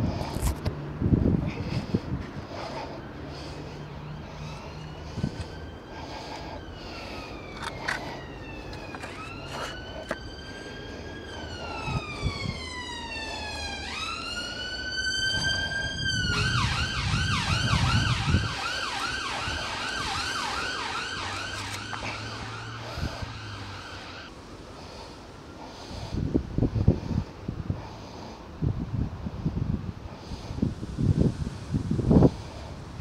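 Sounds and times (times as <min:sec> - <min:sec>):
emergency vehicle siren: 0:01.6 - 0:24.6.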